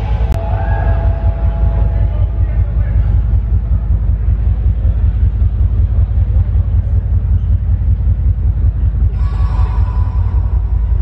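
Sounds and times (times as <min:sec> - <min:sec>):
bright droning layer: 0:00.0 - 0:11.0
deep rumbling bass music: 0:00.0 - 0:11.0.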